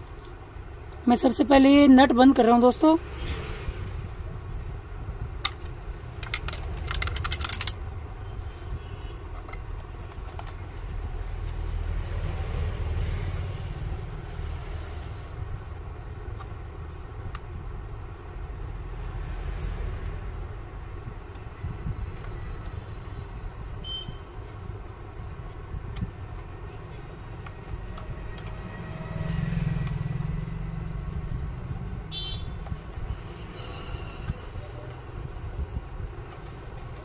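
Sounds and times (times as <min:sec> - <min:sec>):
small metal and plastic clicks: 0:05.4 - 0:07.8.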